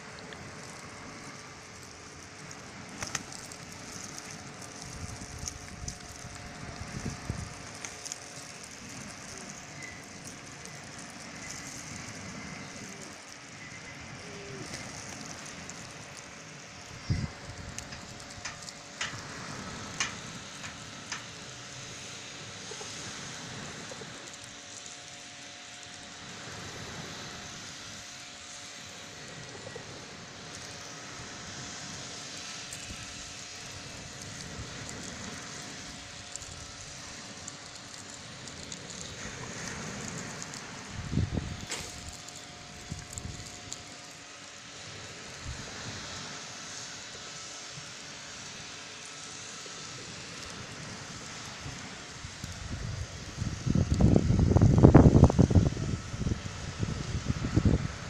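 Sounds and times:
pigeons pecking on pebbles: 0:00.0 - 0:26.9, 0:31.9 - 0:46.2
wind rumbling on microphone: 0:00.4 - 0:24.2, 0:31.2 - 0:44.0, 0:50.1 - 0:58.0
wind buffeting microphone: 0:04.9 - 0:07.7, 0:17.0 - 0:20.3, 0:40.9 - 0:42.1, 0:52.2 - 0:58.0
surf washing: 0:28.8 - 0:44.0.

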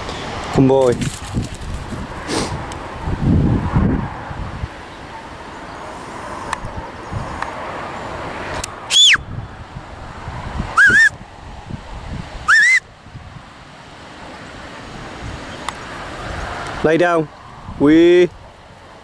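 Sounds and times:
wind rushing: 0:00.0 - 0:18.2
short whistle commands: 0:08.9 - 0:09.2, 0:10.8 - 0:11.2, 0:12.5 - 0:12.8.

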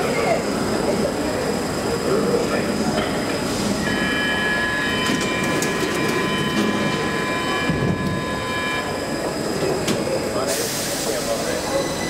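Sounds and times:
train high-pitched whine: 0:00.0 - 0:12.0.

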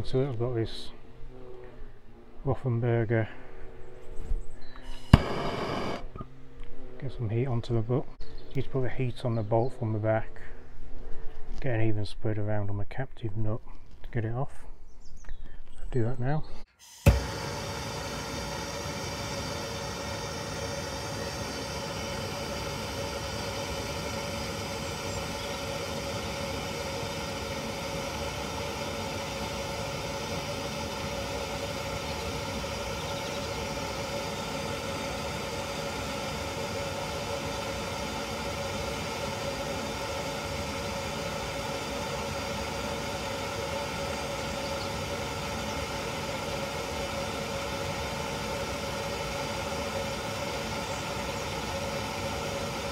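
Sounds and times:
gas blowtorch flame rushing: 0:04.8 - 0:06.2, 0:16.8 - 0:52.9.

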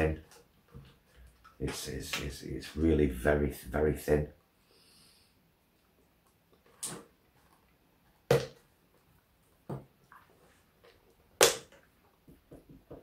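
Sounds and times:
chocolate cracking: 0:11.4 - 0:11.9.

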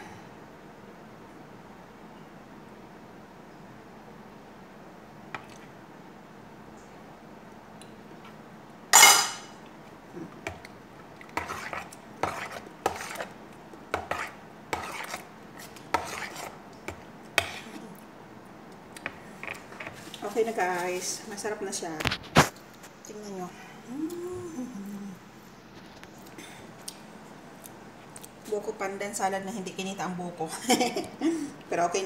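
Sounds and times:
metal spoons clinking on a bowl: 0:09.0 - 0:09.5.

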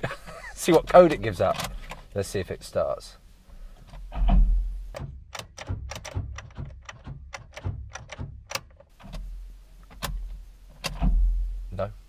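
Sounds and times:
ignition key clicks and clunks: 0:00.6 - 0:02.1, 0:03.8 - 0:11.3.

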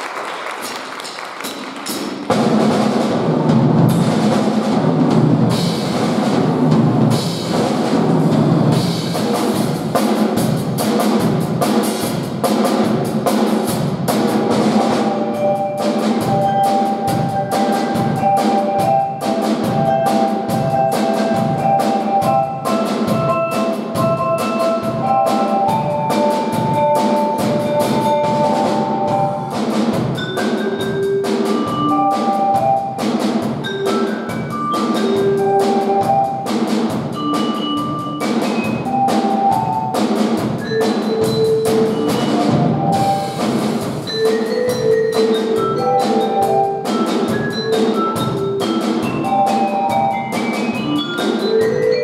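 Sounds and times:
drum kit fast beat: 0:00.0 - 0:52.0
mallet keyboard melody: 0:14.5 - 0:52.0.

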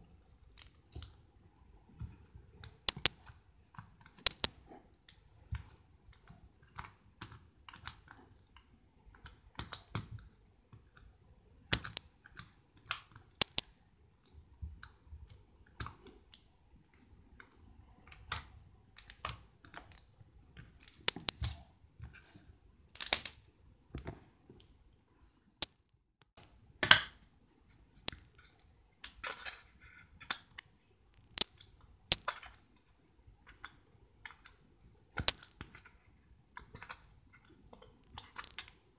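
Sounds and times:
slime squelching clicks and pops: 0:02.9 - 0:03.2, 0:11.7 - 0:12.0, 0:13.4 - 0:13.7.

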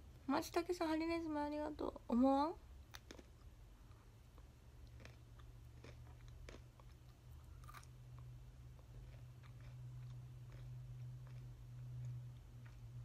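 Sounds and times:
low electrical hum: 0:00.0 - 0:13.0
person chewing crunchy food: 0:02.8 - 0:13.0.

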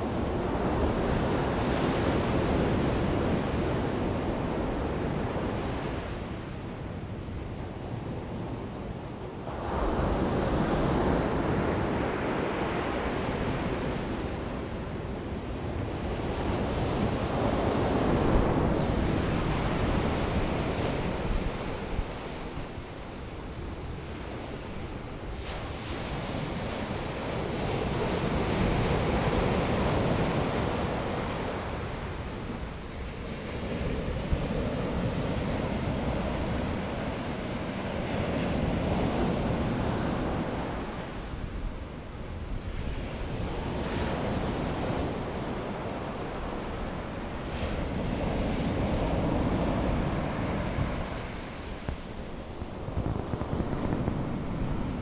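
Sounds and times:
sea surf on pebble beach: 0:15.6 - 0:41.6, 0:42.5 - 0:55.0.

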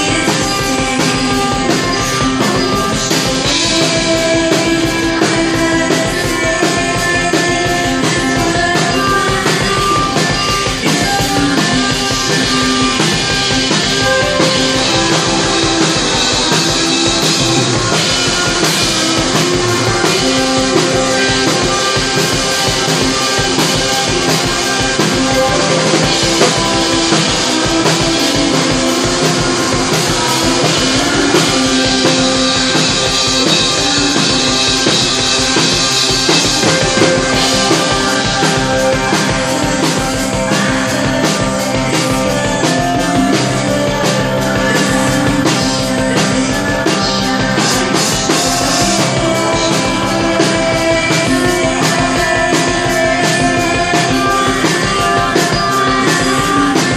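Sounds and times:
drum kit beat: 0:00.0 - 0:56.9
electric guitar held notes: 0:00.0 - 0:56.9.

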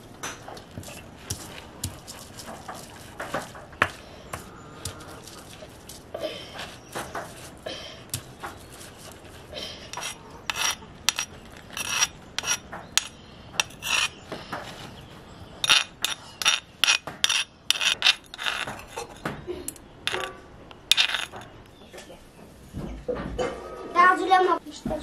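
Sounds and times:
metal spoon scraping stone: 0:09.9 - 0:14.2, 0:15.6 - 0:19.3, 0:20.1 - 0:21.6
stone grinding paste on stone slab: 0:09.9 - 0:14.2, 0:15.6 - 0:19.2, 0:20.1 - 0:21.5.

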